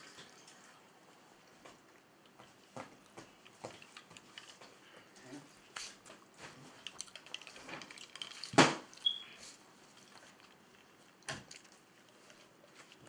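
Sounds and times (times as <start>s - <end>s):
clatters and rustles of eating: 0.0s - 13.0s
brief squeak: 9.0s - 9.4s.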